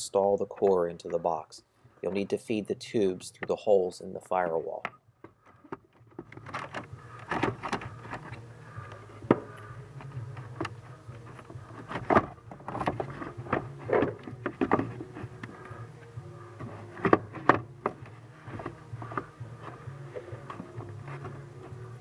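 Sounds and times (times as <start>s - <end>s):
plastic parts clicking and scraping: 4.8s - 22.0s
steady low hum: 5.0s - 22.0s.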